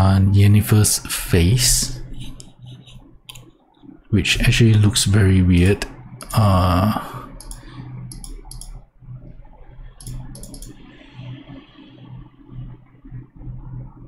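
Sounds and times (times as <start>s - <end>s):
faint low hum: 0.0s - 14.0s
computer mouse clicks: 2.2s - 3.6s, 7.4s - 9.4s, 10.0s - 10.9s.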